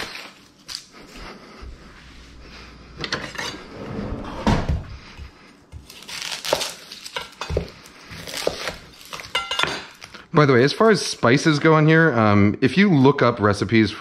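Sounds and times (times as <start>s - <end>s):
drawer opening: 3.0s - 5.0s.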